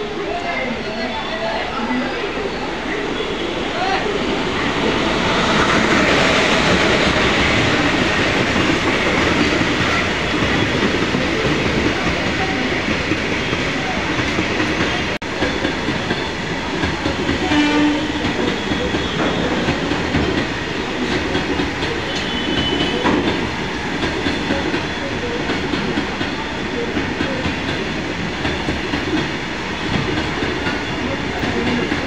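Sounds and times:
train wheels rumbling on rails: 2.8 - 32.0.

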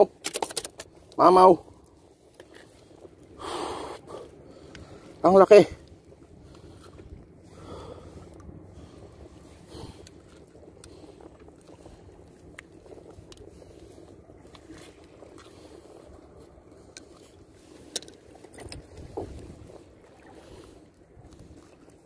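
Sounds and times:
sea: 0.0 - 22.0
wind: 0.0 - 22.0.

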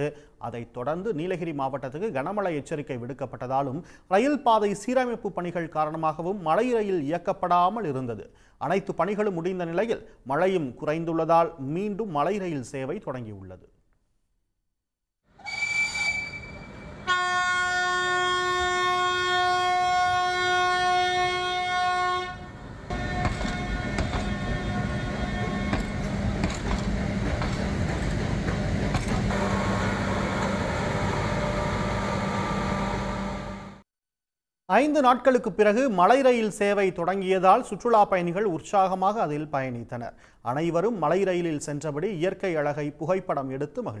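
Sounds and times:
short high whistle: 15.4 - 16.8
train whistle blast: 15.4 - 26.2, 29.3 - 33.8
train rumbling: 15.8 - 33.7
wheels clicking on rails: 25.4 - 29.5.

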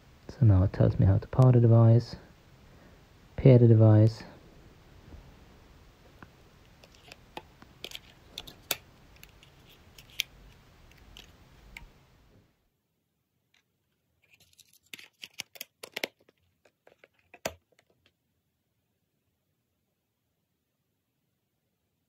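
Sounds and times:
plastic clicks and scrapes: 6.7 - 11.9, 13.6 - 18.1.

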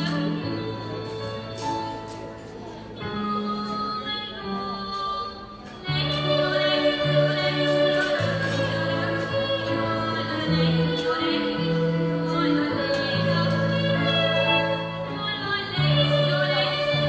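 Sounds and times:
instrumental accompaniment: 0.0 - 17.0
children's choir singing: 5.8 - 17.0.

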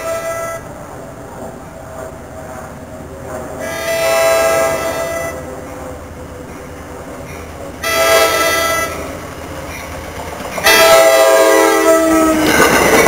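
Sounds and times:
train horn blasts: 0.0 - 0.7, 3.6 - 5.5, 7.8 - 9.1, 10.6 - 12.6.

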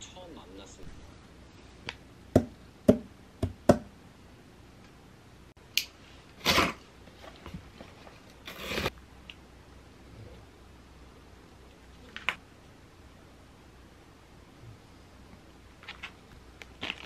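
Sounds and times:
packaging rustling and scraping: 16.8 - 17.0.

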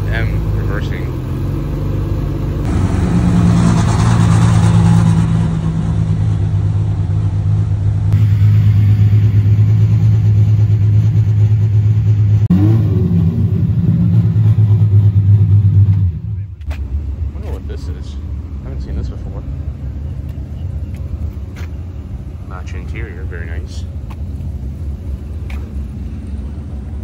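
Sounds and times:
sports car engine idling: 5.5 - 27.0.

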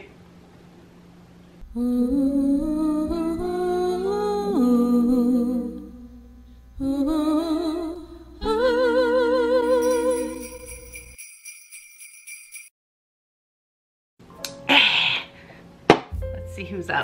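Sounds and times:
wordless hummed melody: 1.6 - 10.5.

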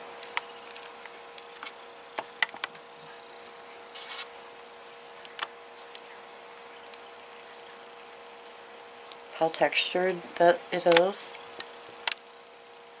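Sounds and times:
leaves rustling: 0.0 - 9.3
faint steady hum: 0.0 - 13.0.

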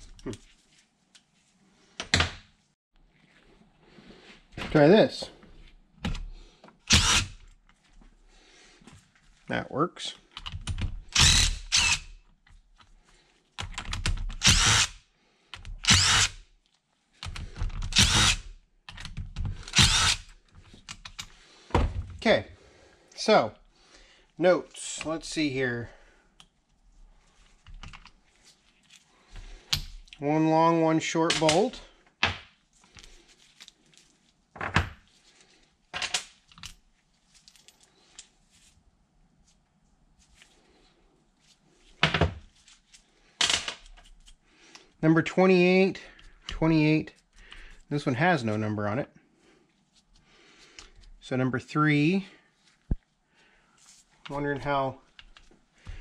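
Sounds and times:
impact driver bursts: 6.9 - 7.4, 11.2 - 12.1, 14.4 - 15.0, 15.8 - 16.4, 17.9 - 18.4, 19.6 - 20.2.

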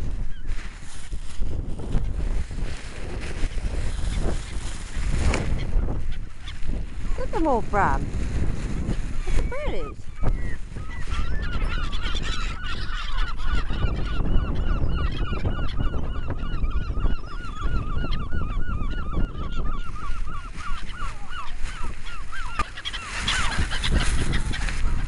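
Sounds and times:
wind rumble on microphone: 0.0 - 25.0
faint gull calls: 9.2 - 25.0
gull calling rapidly: 9.2 - 25.0.

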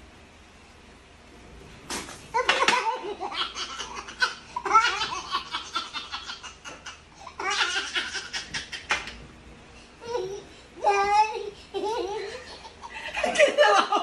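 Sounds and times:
people laughing: 12.0 - 14.0.

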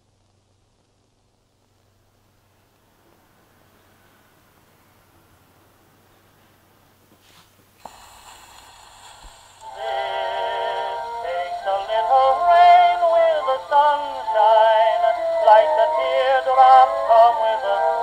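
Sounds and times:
record surface hiss: 0.0 - 18.0
tinny old gramophone band music: 7.2 - 18.0.

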